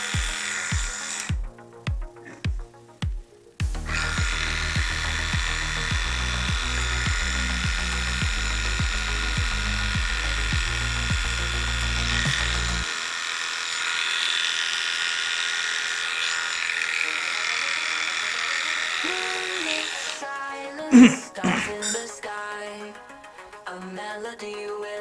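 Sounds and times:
electric pet clipper whining: 0.0 - 1.4, 3.8 - 20.2
background music with beat: 0.0 - 12.9, 18.4 - 25.0.

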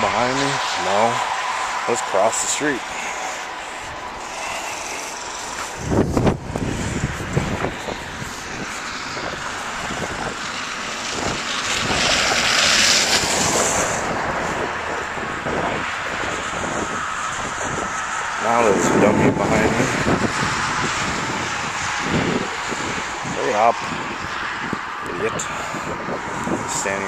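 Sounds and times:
vehicle tyres hissing on slush: 0.0 - 24.6, 25.4 - 27.0
wind buffeting microphone: 0.0 - 27.0.

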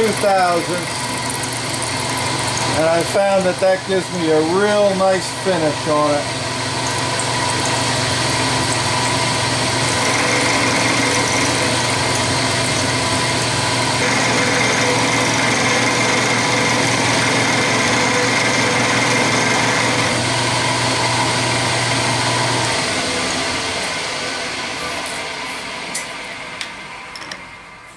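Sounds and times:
milling machine cutting steel: 0.0 - 24.2.

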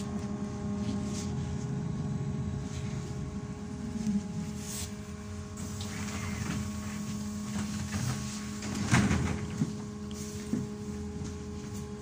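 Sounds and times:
trolleybus electrical hum: 0.0 - 12.0
rattling clatter of bus body: 5.6 - 12.0.

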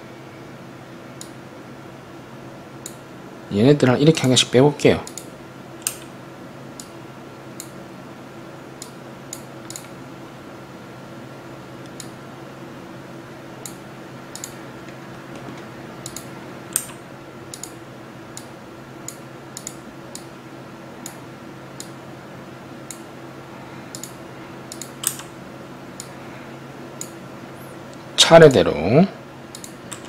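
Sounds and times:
faint steady hum: 0.0 - 30.0
computer mouse clicks: 5.0 - 6.1, 8.8 - 9.9, 13.6 - 14.6, 16.0 - 17.8, 19.1 - 20.3, 23.9 - 25.3, 29.5 - 30.0.

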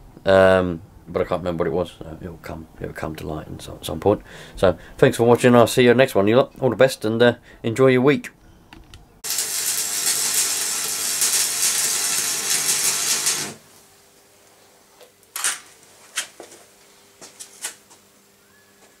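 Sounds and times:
electric arc welding crackle: 9.2 - 13.8.

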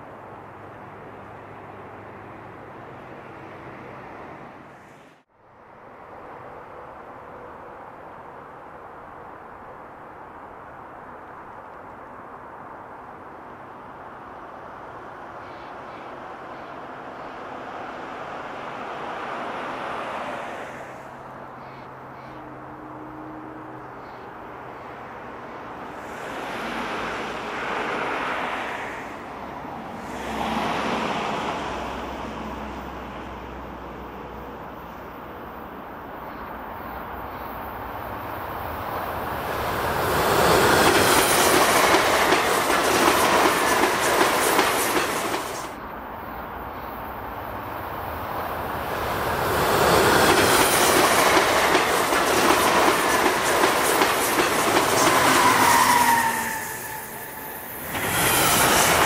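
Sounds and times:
train wheels clacking over rail joints: 40.5 - 45.8, 49.7 - 57.0.

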